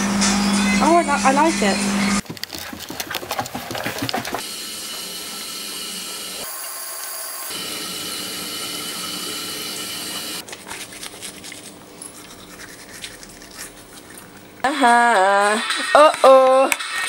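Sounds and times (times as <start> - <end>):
electric toothbrush buzzing: 0.0 - 16.2
toothbrush scrubbing teeth: 2.2 - 4.4, 10.2 - 14.7.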